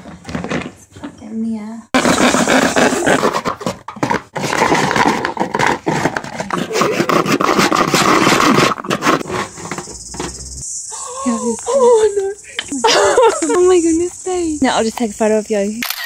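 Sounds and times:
hand saw cutting plastic: 2.0s - 9.8s.

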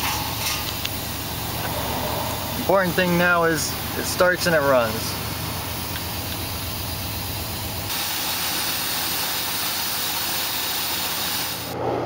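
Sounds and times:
car engine idling rough: 0.0s - 10.6s.

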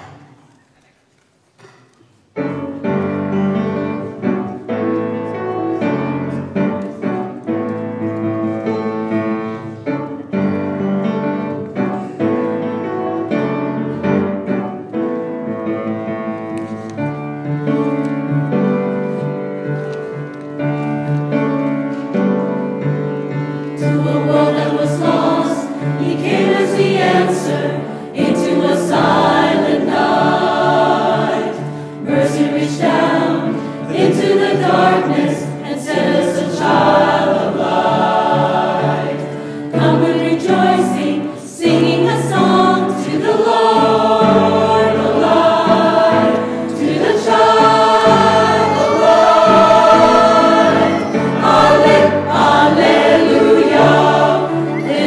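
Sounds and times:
piano chords: 2.3s - 55.0s
mixed choir singing: 23.3s - 55.0s.

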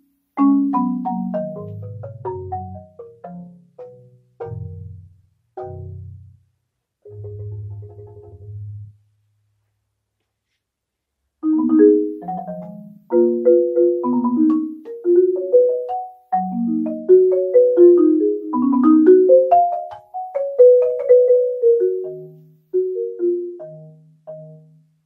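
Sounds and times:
marimba played with mallets: 0.0s - 6.3s, 11.4s - 24.8s.

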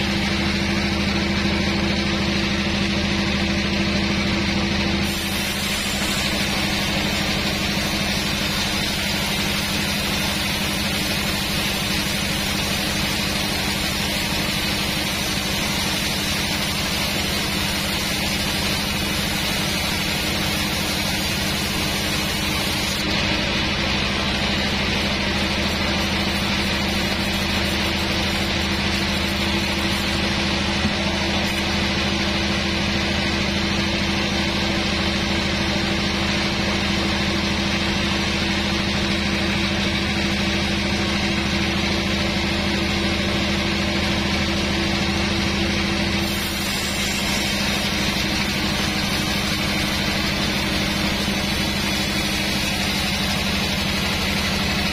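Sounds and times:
band saw cutting log: 0.0s - 3.0s, 4.9s - 33.0s, 45.9s - 54.9s.

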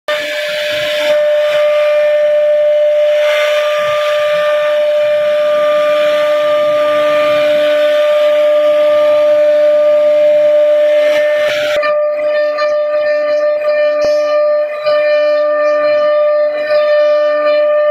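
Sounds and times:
bit cutting wood hiss: 0.1s - 11.8s
router spindle high whine: 0.1s - 17.9s.

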